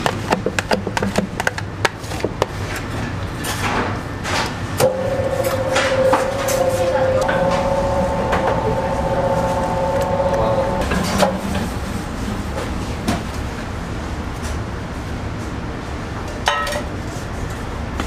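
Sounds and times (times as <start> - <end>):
steady high tone: 4.8 - 12.4.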